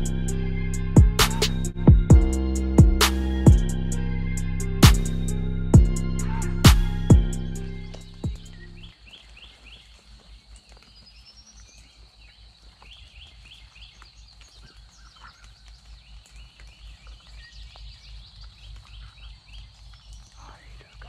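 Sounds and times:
low uneven rumble: 0:00.0 - 0:08.9
songbirds chirping: 0:00.0 - 0:21.0.

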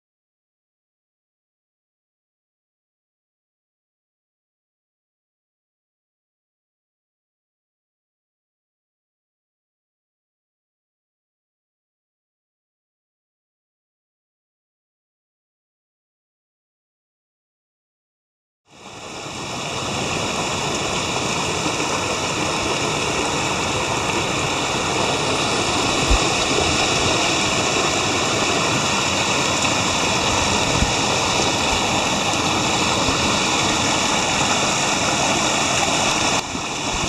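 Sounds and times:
creek rushing over boulders: 0:18.7 - 0:37.0.

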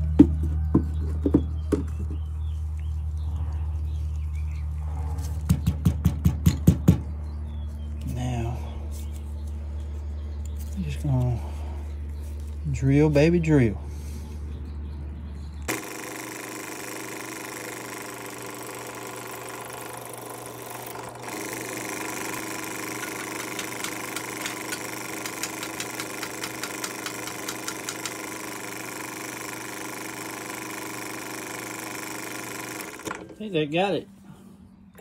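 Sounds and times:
drill press motor drilling: 0:15.7 - 0:33.4.

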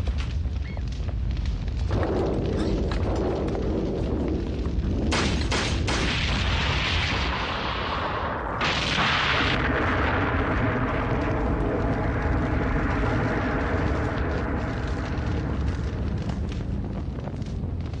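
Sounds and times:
rumble of explosions and fire: 0:00.0 - 0:18.0
loud explosion blast: 0:01.8 - 0:18.0
sharp gunshots: 0:05.1 - 0:07.8.

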